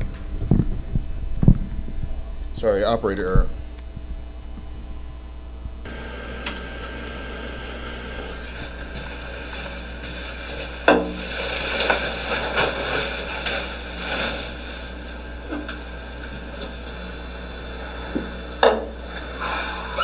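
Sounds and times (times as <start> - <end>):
low hum: 0.0 - 20.0
shuffling and rustling: 8.4 - 15.2.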